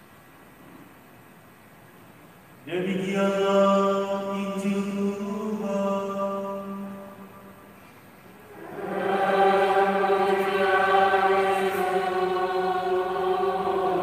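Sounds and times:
choir and congregation singing: 8.4s - 14.0s.

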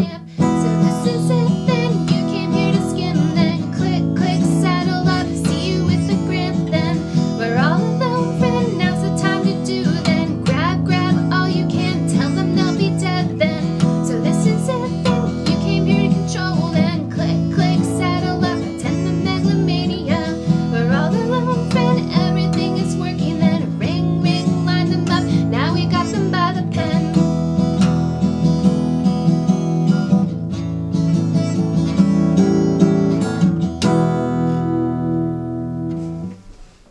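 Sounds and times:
woman singing: 0.0s - 27.4s
acoustic guitar strumming: 0.0s - 36.9s.

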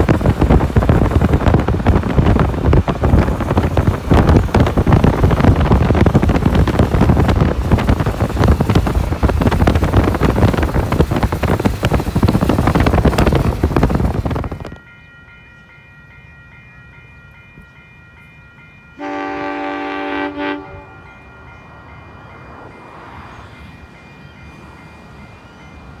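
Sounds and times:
car road noise: 0.0s - 14.8s
wind buffeting microphone: 0.0s - 14.8s
train horn: 19.0s - 21.2s.

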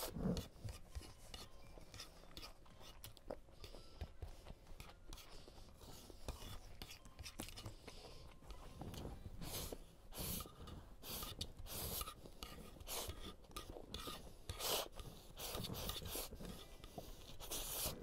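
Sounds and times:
chewing: 0.0s - 18.0s.

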